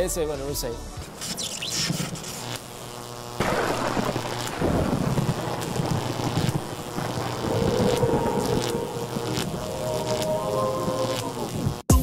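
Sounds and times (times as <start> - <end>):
electronic rumbling noise: 2.4 - 11.9
held synthesizer tones: 7.0 - 11.8.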